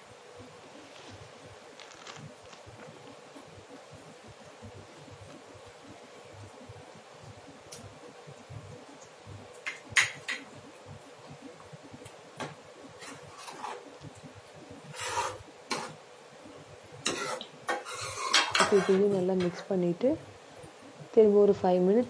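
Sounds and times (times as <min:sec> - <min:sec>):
metal spoon scraping pan: 0:14.9 - 0:16.0, 0:17.0 - 0:19.6.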